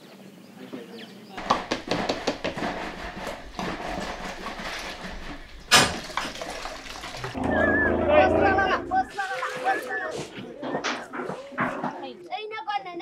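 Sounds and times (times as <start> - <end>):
formula being stirred: 1.4 - 7.4
plastic bottles clattering on table: 1.4 - 7.4.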